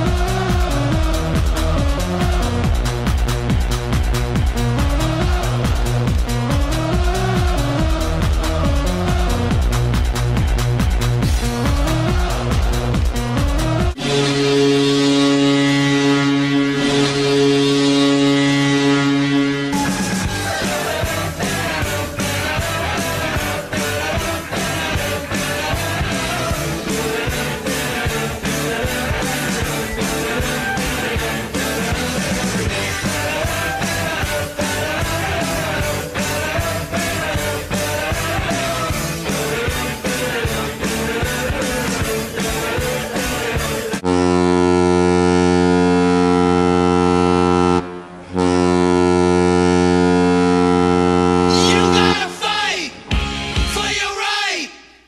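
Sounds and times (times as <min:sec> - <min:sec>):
rock music with singing: 0:00.0 - 0:44.7, 0:51.5 - 0:55.0
goal horn blast: 0:14.0 - 0:21.9, 0:44.0 - 0:52.4.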